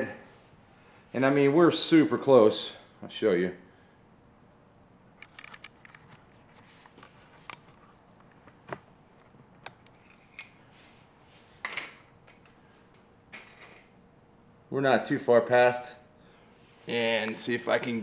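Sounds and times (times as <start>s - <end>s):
faint handling clicks and rustles: 5.2s - 13.9s.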